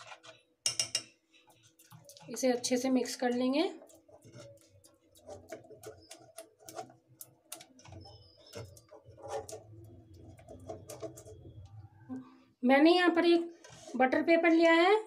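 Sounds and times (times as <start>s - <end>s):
spatula scraping saucepan: 0.0s - 12.0s.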